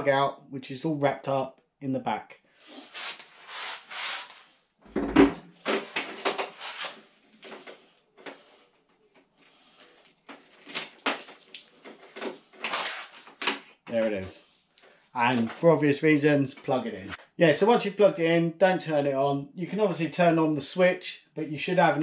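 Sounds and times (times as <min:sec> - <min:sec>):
cable handling rustles and scrapes: 0:05.6 - 0:15.7.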